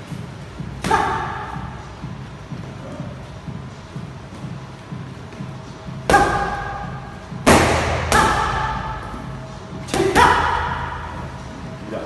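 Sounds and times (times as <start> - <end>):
boxing gloves hitting focus mitts: 7.4 - 9.0.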